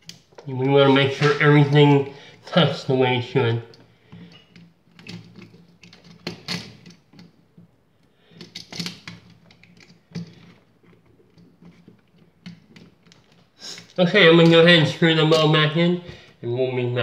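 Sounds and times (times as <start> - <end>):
metal straps and wiring clicking: 3.7 - 15.8.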